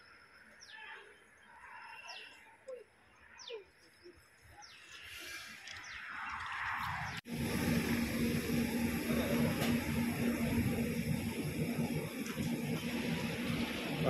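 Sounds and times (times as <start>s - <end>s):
hiss of noise: 6.8s - 14.0s.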